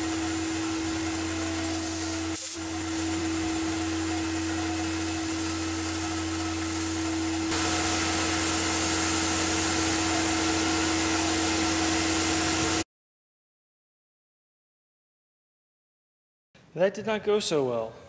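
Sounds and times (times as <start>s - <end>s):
end mill cutting steel sheet: 0.0s - 12.8s
mill spindle whine: 0.0s - 12.8s.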